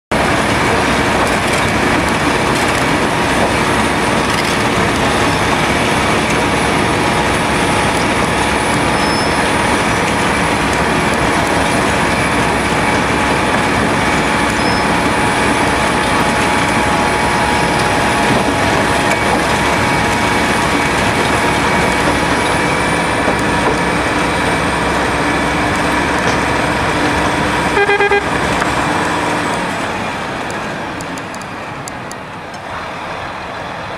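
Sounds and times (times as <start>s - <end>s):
engine running: 0.1s - 33.9s
milling drum grinding asphalt: 0.2s - 29.8s
short horn toot: 27.7s - 28.3s.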